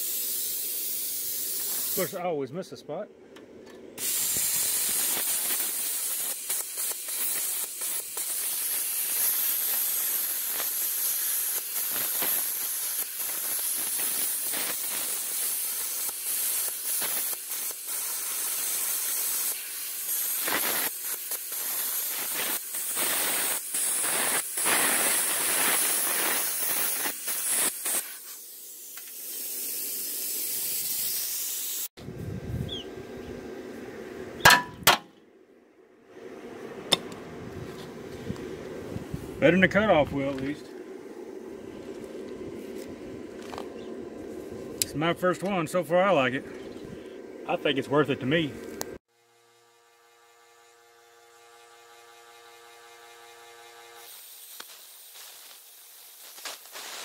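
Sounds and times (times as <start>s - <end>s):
plasma cutter hissing and crackling: 0.0s - 2.3s, 4.0s - 32.0s, 47.6s - 49.1s, 51.2s - 57.0s
soft hiss of air: 0.0s - 2.6s, 3.6s - 34.3s, 36.1s - 49.1s, 54.0s - 57.0s.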